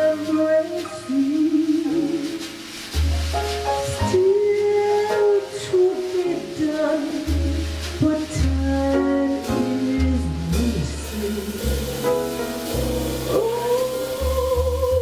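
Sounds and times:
woman singing a ballad: 0.0 - 2.6, 4.0 - 11.9, 13.2 - 15.0
piano accompaniment: 0.0 - 15.0
low bass notes: 5.7 - 15.0.

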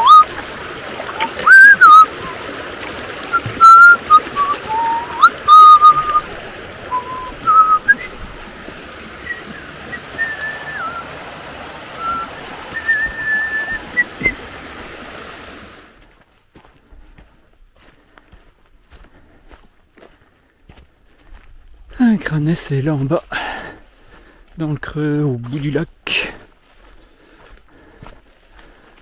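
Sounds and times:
person whistling a slow tune: 0.0 - 0.3, 1.2 - 2.4, 3.3 - 6.2, 6.9 - 8.2, 9.2 - 11.1, 12.0 - 14.4
stream rushing: 0.0 - 16.0.

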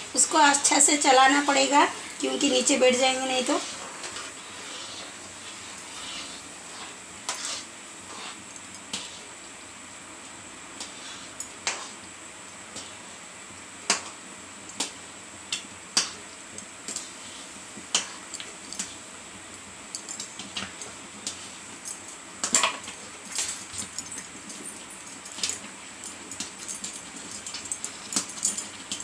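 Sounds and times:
spatula stirring thick semolina: 0.2 - 8.4
bangles clinking: 23.3 - 29.0.

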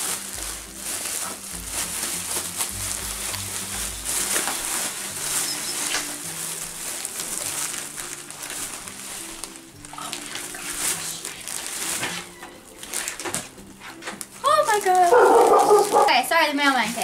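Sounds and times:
background music with bass line: 0.0 - 6.9
bubble wrap crinkling: 0.0 - 17.0.

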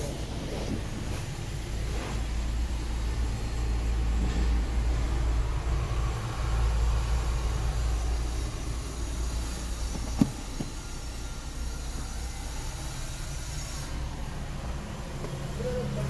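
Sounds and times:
low steady rumble: 0.0 - 16.0.

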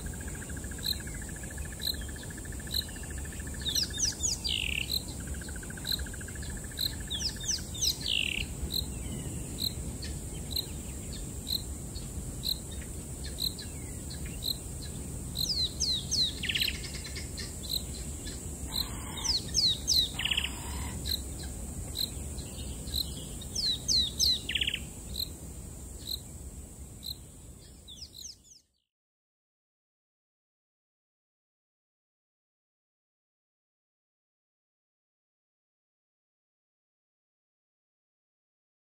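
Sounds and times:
high insect drone: 0.0 - 28.5
high descending bird calls: 18.7 - 22.1.

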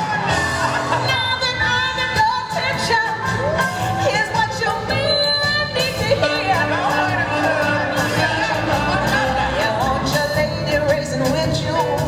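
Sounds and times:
pop song with singing: 0.0 - 12.0.

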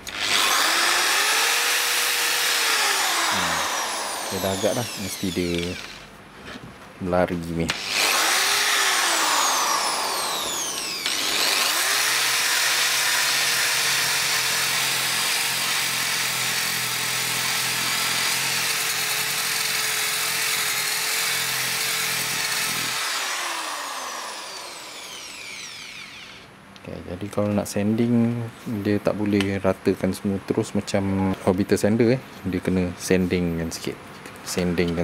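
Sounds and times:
electric polisher motor whine: 0.0 - 6.1, 7.8 - 26.5.

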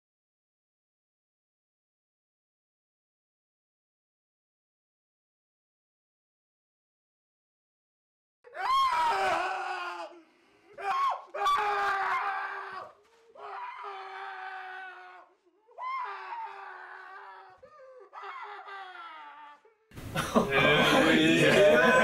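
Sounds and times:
man screaming in pain: 8.5 - 10.2, 10.8 - 19.7.

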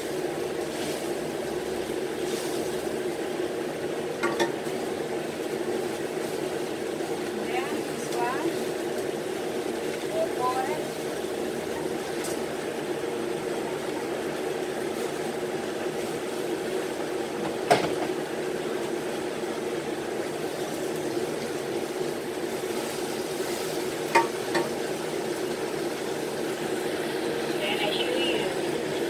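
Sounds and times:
kitchen exhaust fan humming: 0.0 - 29.0.

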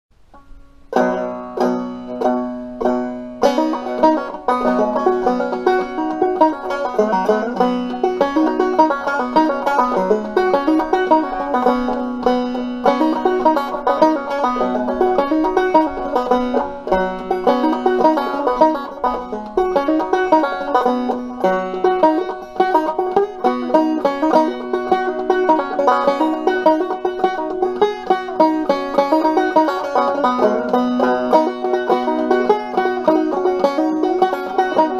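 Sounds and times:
banjo playing: 0.1 - 34.9.

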